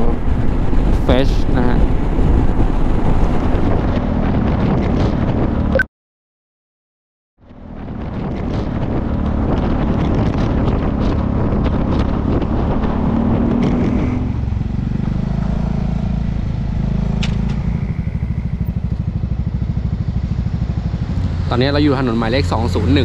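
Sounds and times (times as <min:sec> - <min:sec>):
wind and road noise: 0:00.0 - 0:05.8, 0:07.4 - 0:23.0
scooter engine running: 0:14.4 - 0:22.8.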